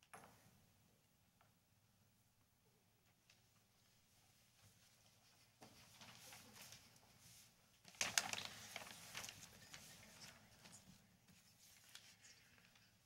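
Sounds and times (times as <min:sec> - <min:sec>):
paper sheets rustling: 0:05.6 - 0:12.9.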